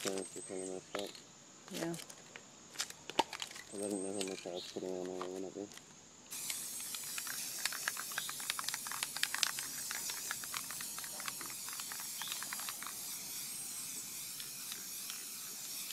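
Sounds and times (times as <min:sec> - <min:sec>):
small sharp clicks: 0:04.2 - 0:13.2, 0:14.2 - 0:15.9
spray can hissing: 0:06.3 - 0:15.9.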